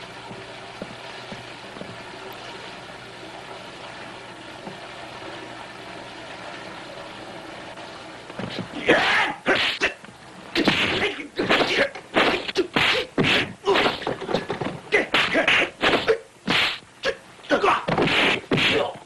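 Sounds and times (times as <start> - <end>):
fighters shouting: 8.8 - 9.7, 17.5 - 18.0
punch and kick whacks: 10.6 - 14.1, 15.1 - 16.8, 17.9 - 18.9.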